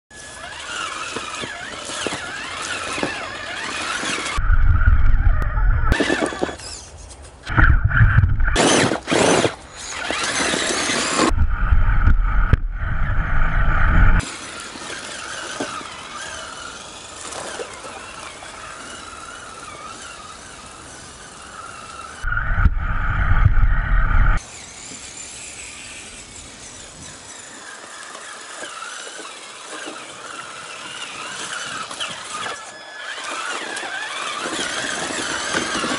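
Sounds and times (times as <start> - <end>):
electric motor whining: 0.1 - 35.9
loud low rumbling: 4.4 - 6.0, 7.5 - 8.6, 11.3 - 14.2, 22.2 - 24.4.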